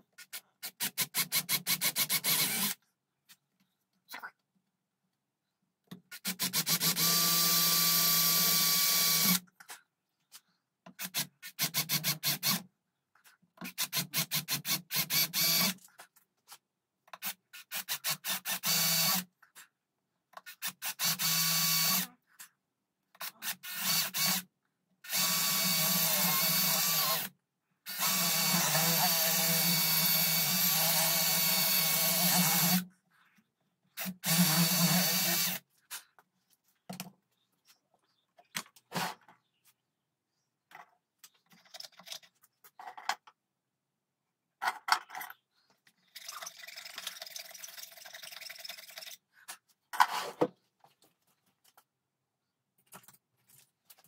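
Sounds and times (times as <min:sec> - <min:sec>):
power drill drilling into wood: 0:00.8 - 0:02.8, 0:06.2 - 0:09.4, 0:13.7 - 0:15.8, 0:17.6 - 0:19.2, 0:20.6 - 0:22.1, 0:23.4 - 0:24.4, 0:25.1 - 0:27.3, 0:27.9 - 0:32.8, 0:34.0 - 0:35.6.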